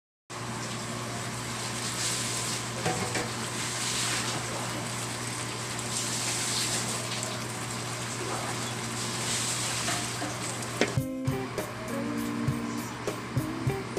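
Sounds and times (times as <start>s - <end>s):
induction cooker hum: 0.3s - 13.9s
food simmering and sizzling: 0.4s - 11.0s.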